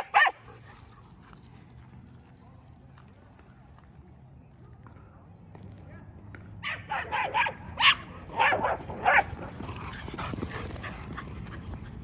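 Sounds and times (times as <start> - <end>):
dog barking: 0.0 - 0.4, 6.6 - 9.5.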